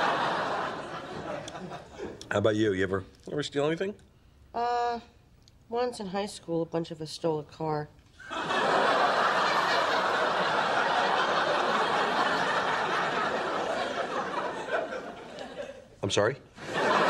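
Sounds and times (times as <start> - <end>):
audience laughing: 0.0 - 2.2, 8.2 - 15.9, 16.6 - 17.0.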